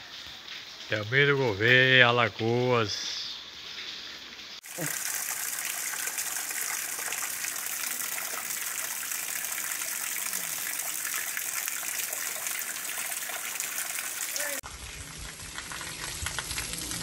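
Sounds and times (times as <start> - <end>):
heavy rain falling: 4.6 - 17.0
runoff splashing on ground: 4.6 - 17.0.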